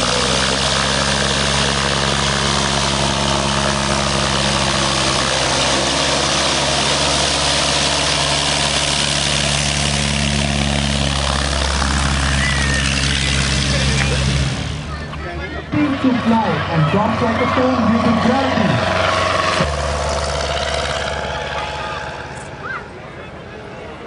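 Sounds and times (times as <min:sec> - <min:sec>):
light plane engine and propeller: 0:00.0 - 0:24.0.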